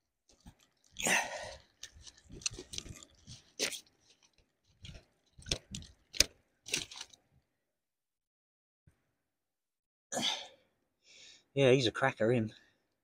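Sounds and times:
rustling and crunching handling: 0.2s - 7.2s.

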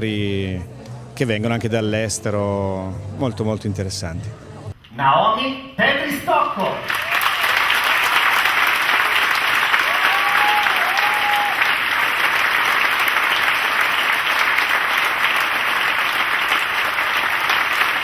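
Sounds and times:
audience applause: 6.8s - 18.0s.

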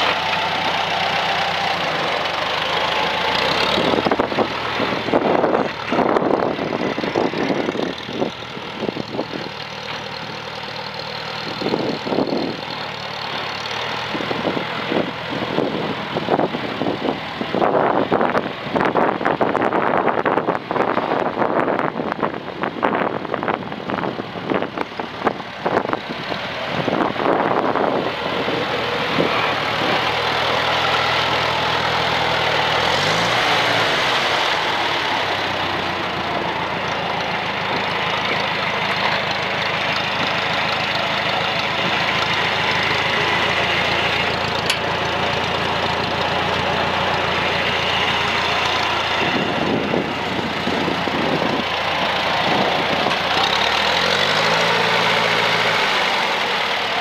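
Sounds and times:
tractor engine running: 0.0s - 57.0s
gusty wind noise: 2.5s - 9.6s, 14.1s - 37.8s, 42.8s - 56.5s.

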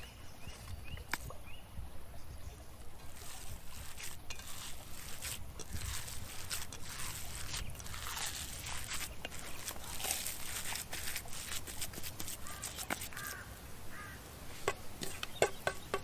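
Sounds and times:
hands squelching minced meat: 3.2s - 13.4s
bird calls: 12.2s - 16.0s.

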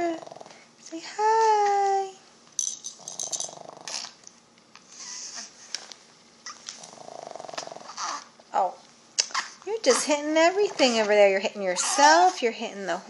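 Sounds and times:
pet snoring: 0.0s - 0.6s, 3.0s - 4.1s, 6.8s - 8.3s
hanging toys rattling: 2.6s - 3.6s.

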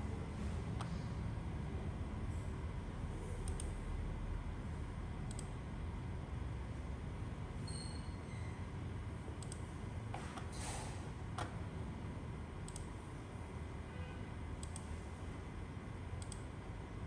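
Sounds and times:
computer mouse clicks: 3.4s - 3.8s, 5.3s - 5.5s, 9.4s - 9.7s, 12.6s - 12.9s, 14.6s - 14.9s, 16.2s - 16.5s.

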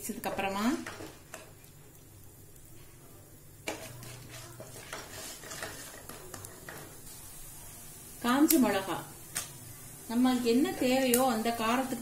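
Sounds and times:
lentils sizzling in a pan: 0.0s - 12.0s
spatula scraping pan: 3.6s - 7.2s.

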